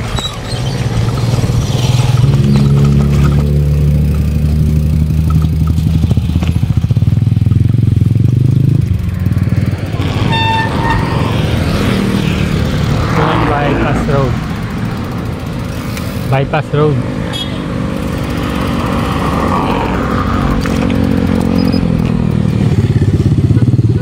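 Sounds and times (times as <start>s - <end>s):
small motorcycle engine running: 0.0s - 24.0s
horn toot: 10.0s - 12.5s.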